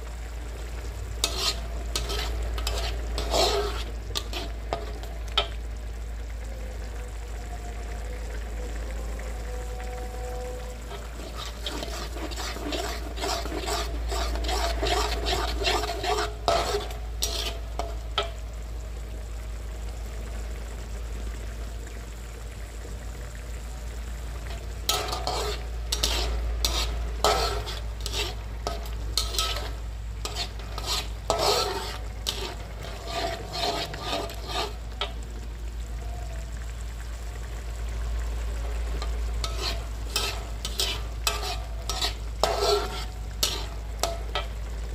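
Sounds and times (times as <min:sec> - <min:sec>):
paste sizzling in wok: 0:00.0 - 0:07.4, 0:08.2 - 0:44.9
metal spatula scraping wok: 0:01.1 - 0:05.6, 0:10.8 - 0:18.4, 0:24.4 - 0:35.2, 0:39.0 - 0:44.6.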